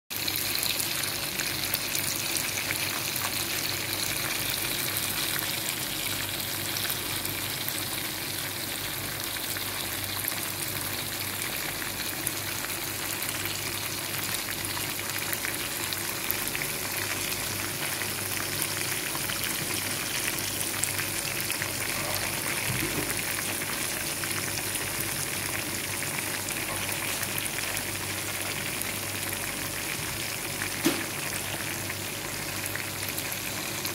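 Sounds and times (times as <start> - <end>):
chicken frying in oil: 0.1 - 33.9.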